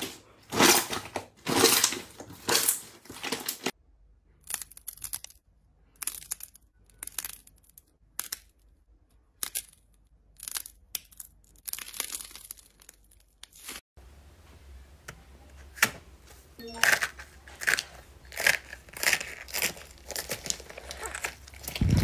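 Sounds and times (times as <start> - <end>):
slime crackling: 17.7 - 22.0.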